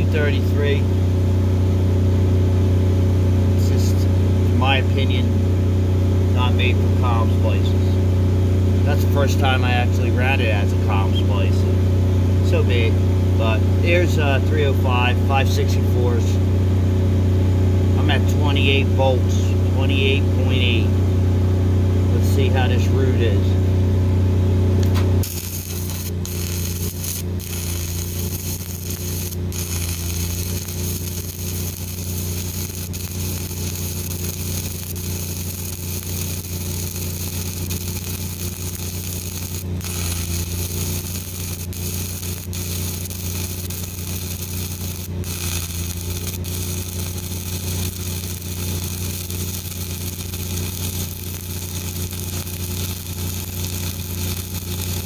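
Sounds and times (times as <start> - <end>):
steady low hum: 0.0 - 55.0
welding arc crackling: 24.8 - 55.0.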